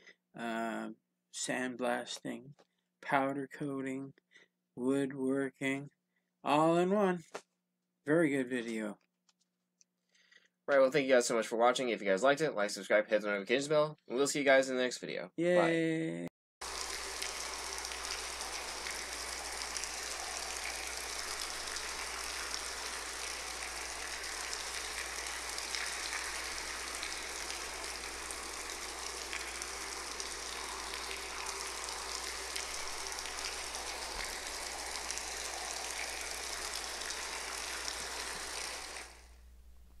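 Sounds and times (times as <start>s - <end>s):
steady hiss like rain: 16.6s - 39.6s.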